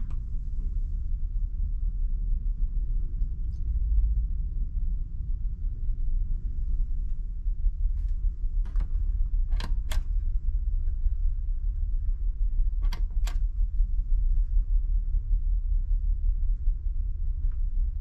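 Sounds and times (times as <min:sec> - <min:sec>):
lamp push-button switch clicks: 0:09.5 - 0:10.1, 0:12.8 - 0:13.4.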